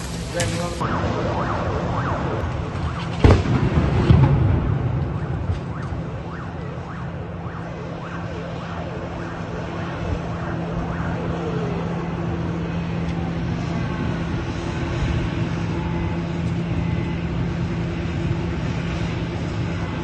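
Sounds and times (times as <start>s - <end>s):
emergency vehicle sirens wailing: 0.0s - 20.0s
low rumble: 0.0s - 20.0s
explosion bang: 2.6s - 5.9s.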